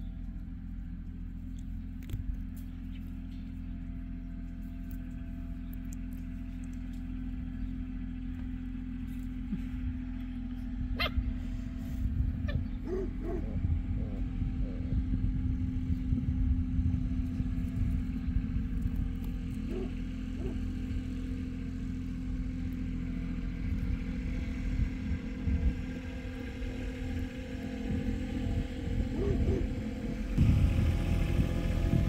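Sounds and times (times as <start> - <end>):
low rumble with hum: 0.0 - 32.0
puppies yipping and whining: 10.9 - 15.0, 19.7 - 20.6, 29.0 - 30.2.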